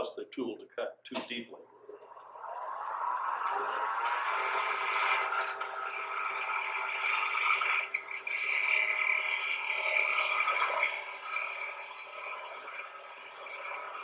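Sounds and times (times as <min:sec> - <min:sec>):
chisel scraping wood on lathe: 0:04.0 - 0:14.0.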